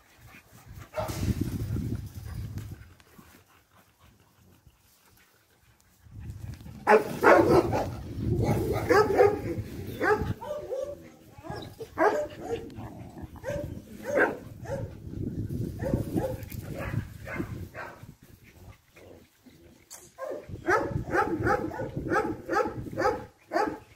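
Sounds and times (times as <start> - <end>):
dogs barking: 6.8 - 15.0, 15.8 - 18.0, 20.2 - 23.8.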